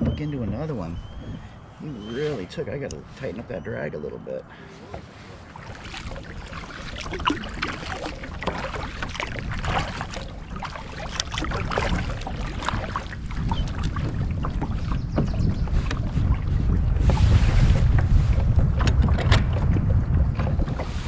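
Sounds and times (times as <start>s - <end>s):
wind rumbling on microphone: 0.0s - 21.0s
paddle splashing in water: 4.5s - 21.0s.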